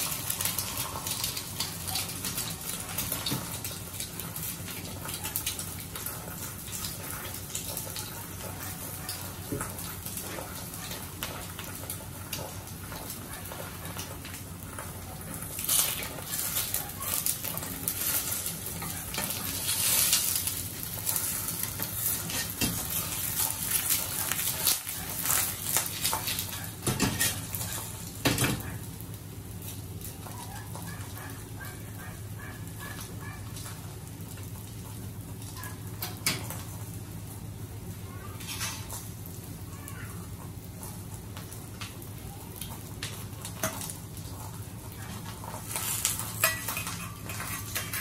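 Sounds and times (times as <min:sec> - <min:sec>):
egg sizzling in a pan: 0:00.0 - 0:48.0
knocks and scrapes in a pan: 0:45.4 - 0:48.0.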